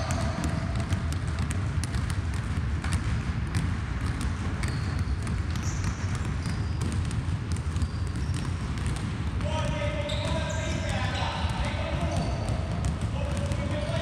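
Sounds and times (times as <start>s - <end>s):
basketballs bouncing on hardwood: 0.0s - 14.0s
shoe squeaks: 4.6s - 7.0s, 7.6s - 8.6s, 9.6s - 12.7s.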